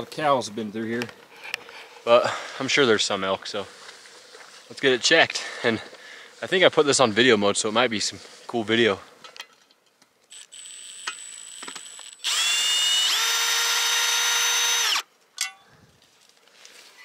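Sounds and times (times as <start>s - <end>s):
cordless drill running: 10.3s - 15.1s
faint high whine: 10.3s - 15.6s.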